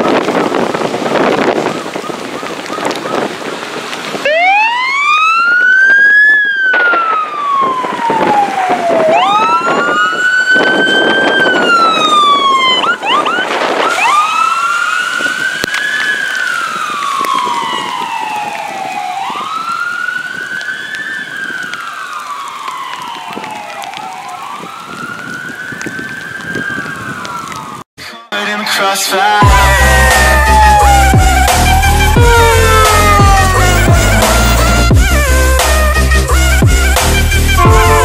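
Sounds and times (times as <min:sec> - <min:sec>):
rain and wind on microphone: 0:00.0 - 0:27.9, 0:29.4 - 0:38.0
electronic siren wailing: 0:04.2 - 0:27.8, 0:29.4 - 0:38.0
siren yelps: 0:04.2 - 0:27.8, 0:29.2 - 0:38.0.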